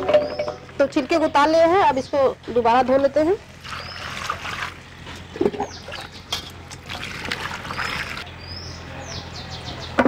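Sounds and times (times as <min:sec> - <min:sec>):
bird chirps: 0:00.2 - 0:00.6
water splashing in steel bowl: 0:03.6 - 0:04.9, 0:05.7 - 0:08.3.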